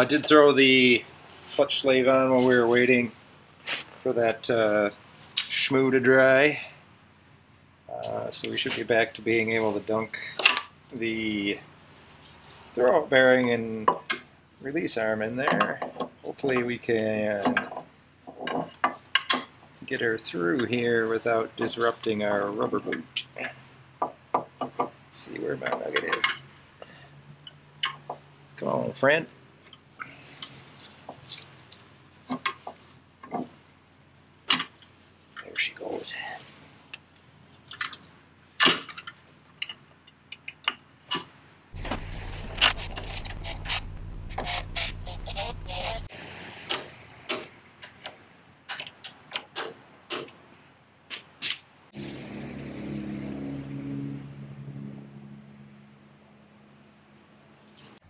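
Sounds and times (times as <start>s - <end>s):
sharp metallic clicks: 41.8s - 46.1s
steady low hum: 41.8s - 46.1s.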